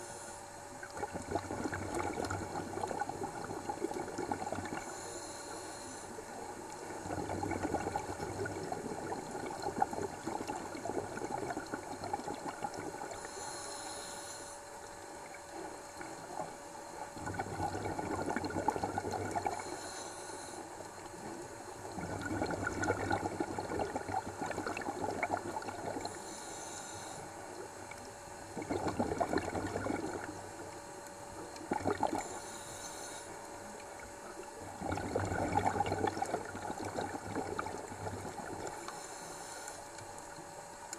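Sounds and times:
regulator inhalation hiss: 0.0 - 0.4, 4.8 - 6.4, 13.1 - 14.8, 19.6 - 20.7, 26.0 - 27.4, 32.2 - 33.5, 38.7 - 40.0
faint steady hum: 0.0 - 40.9
bubbling exhalation: 0.8 - 4.9, 7.0 - 13.2, 17.2 - 19.7, 22.0 - 26.2, 28.5 - 30.4, 31.6 - 32.4, 34.7 - 38.9.

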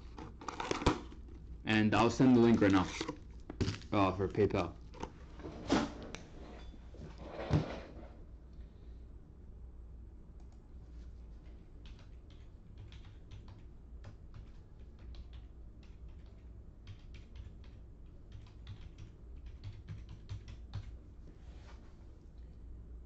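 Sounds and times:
faint low hum: 0.0 - 23.0
computer keyboard typing: 11.8 - 21.0.

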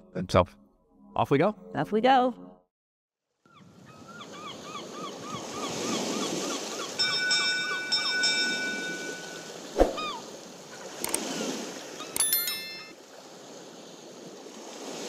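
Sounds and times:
waves washing on shore: 4.5 - 15.0
bright chime: 7.0 - 9.6, 12.0 - 12.9
sharp swooping pop: 9.8 - 10.1
click: 11.0 - 11.2.

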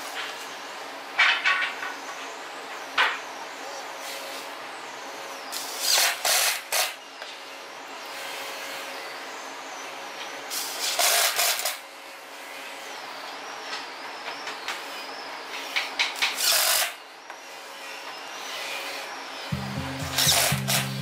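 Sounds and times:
cordless drill driving screws: 10.5 - 11.8, 15.6 - 19.0, 20.1 - 20.9.

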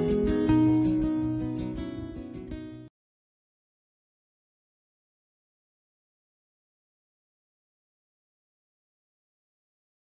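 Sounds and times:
plucked acoustic guitar: 0.0 - 2.9.

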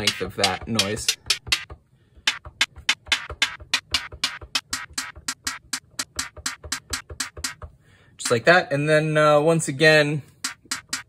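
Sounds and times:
synthesised hi-hat hits: 2.3 - 7.7, 10.4 - 11.0.

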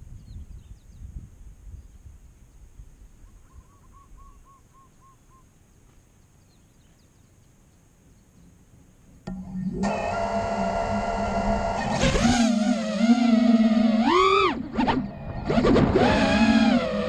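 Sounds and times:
bird hooting: 3.3 - 5.5
low rumble: 10.8 - 17.0.

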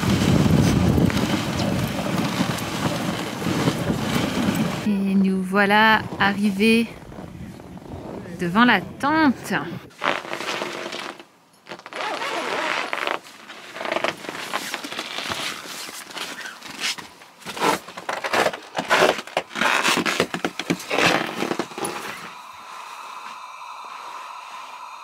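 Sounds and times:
canvas tent flap rustling: 0.0 - 4.9, 9.9 - 22.4
steady background noise: 13.1 - 25.0.

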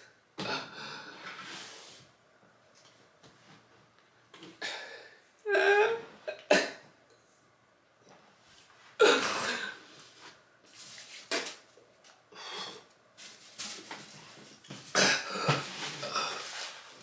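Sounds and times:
man coughing: 14.9 - 15.6.

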